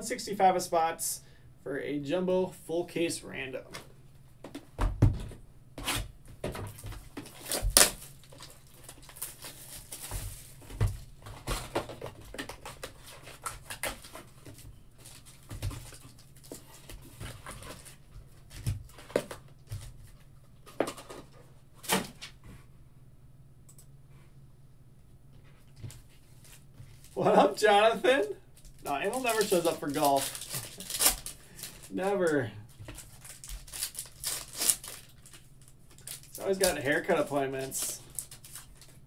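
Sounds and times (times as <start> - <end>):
foil wrappers crinkling: 6.7 - 21.3, 25.8 - 39.0.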